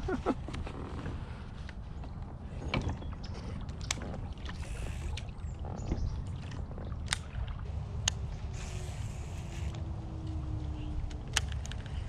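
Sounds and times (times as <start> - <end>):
water along kayak hull: 0.0 - 12.0
steady low rumble: 4.2 - 12.0.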